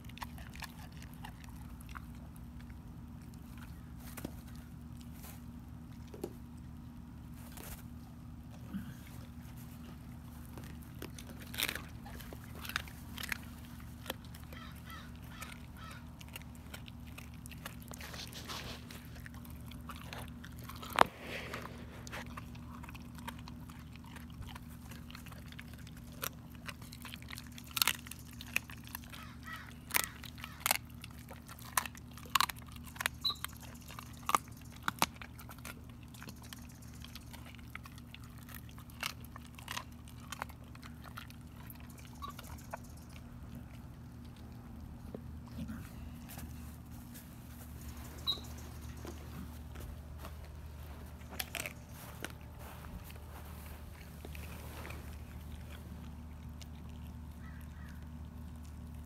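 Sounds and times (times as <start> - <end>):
dog chewing bones: 0.0 - 59.0
steady low hum: 0.0 - 59.0
bones cracking: 10.1 - 42.4.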